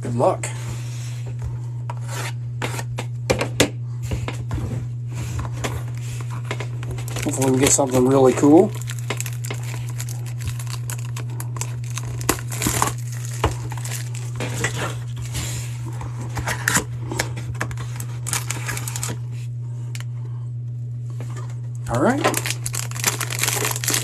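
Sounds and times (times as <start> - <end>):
low hum: 0.0 - 24.0
plastic wrap crinkling and tearing: 6.8 - 15.3, 17.8 - 19.2, 21.9 - 24.0.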